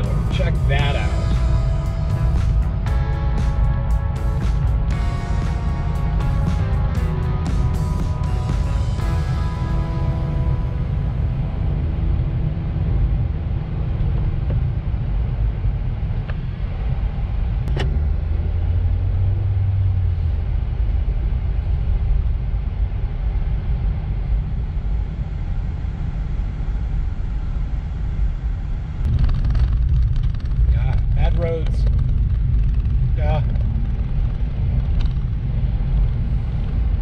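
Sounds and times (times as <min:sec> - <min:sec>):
background music: 0:00.0 - 0:13.6
car cabin road rumble: 0:00.0 - 0:37.0.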